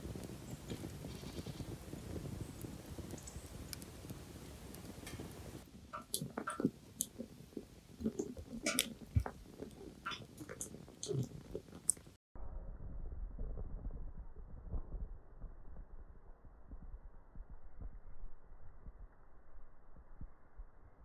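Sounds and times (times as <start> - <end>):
wood fire crackling and popping: 0.0 - 12.2
low rumble of burning: 0.0 - 21.0.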